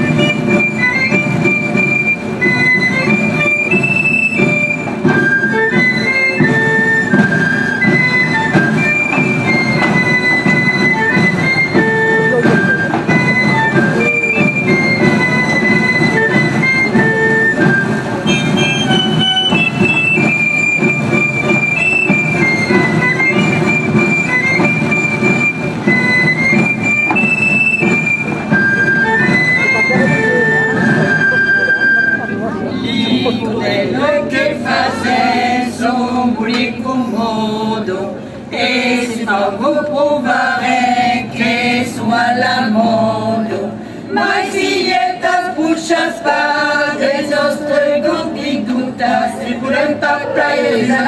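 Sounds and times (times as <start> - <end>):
shrill pipe melody: 0.0 - 35.6.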